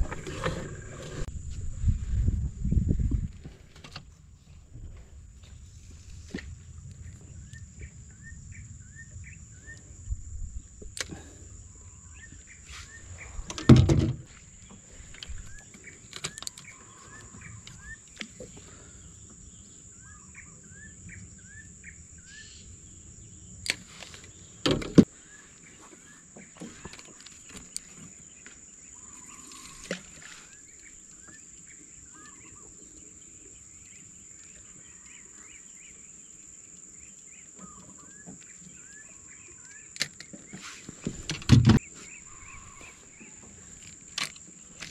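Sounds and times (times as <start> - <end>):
birds chirping: 5.5 - 44.9
loud knocks in boat: 41.3 - 41.8.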